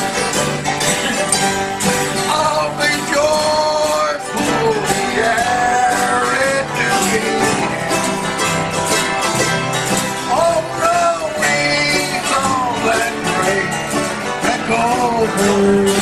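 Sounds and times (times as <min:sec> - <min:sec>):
picked banjo: 0:00.0 - 0:16.0
strummed acoustic guitars: 0:00.0 - 0:16.0
man singing: 0:02.2 - 0:08.6, 0:10.2 - 0:16.0.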